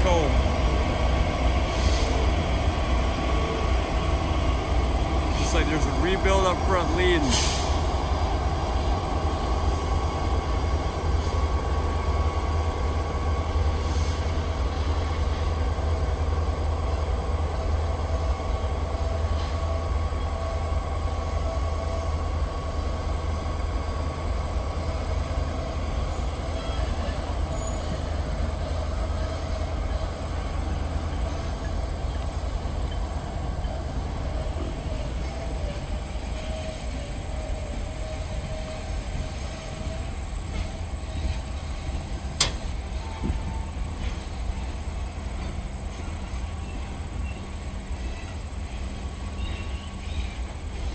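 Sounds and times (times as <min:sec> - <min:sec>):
train wheels rumbling on rail: 0:00.0 - 0:50.9
faint thin squeal: 0:26.5 - 0:28.2, 0:45.9 - 0:50.9.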